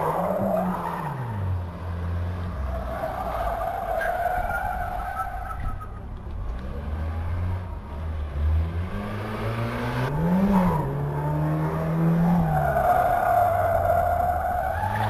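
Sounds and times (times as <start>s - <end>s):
car engine revving hard: 8.2s - 12.5s.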